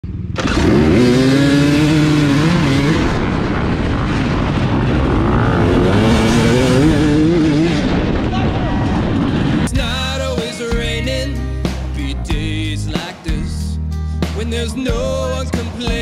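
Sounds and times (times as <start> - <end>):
dirt bike engine revving: 0.0 - 8.3
other bike engines running: 0.0 - 9.7.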